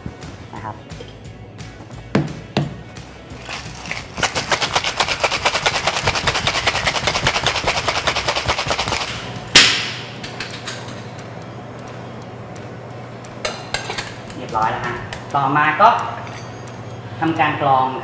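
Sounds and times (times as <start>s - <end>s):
ice rattling in cocktail shaker: 3.4s - 9.1s.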